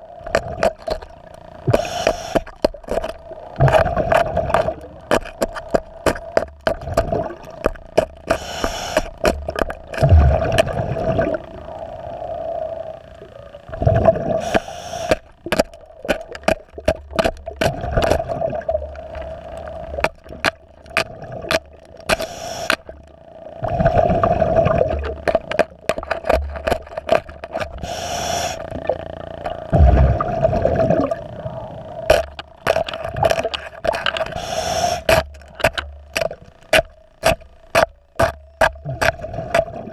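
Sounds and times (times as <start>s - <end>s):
exhale bubbles rumbling: 0.0s - 36.8s, 38.8s - 39.9s
steady hum: 0.0s - 39.9s
regulator breath inhale: 1.7s - 2.6s, 8.3s - 9.2s, 14.4s - 15.2s, 22.1s - 22.8s, 27.8s - 28.7s, 34.3s - 35.2s.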